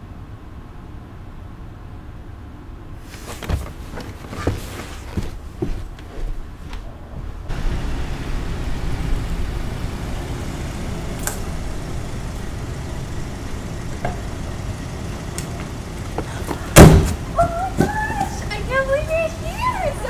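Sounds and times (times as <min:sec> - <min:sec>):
low steady rumble: 0:06.3 - 0:20.0
car door slamming: 0:16.5 - 0:17.2
girl's excited voice: 0:17.4 - 0:20.0.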